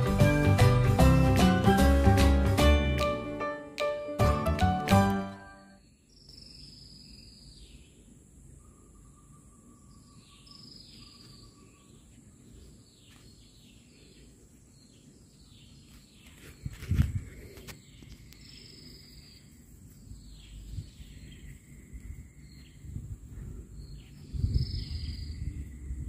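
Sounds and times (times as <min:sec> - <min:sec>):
birds chirping: 0:05.4 - 0:26.0.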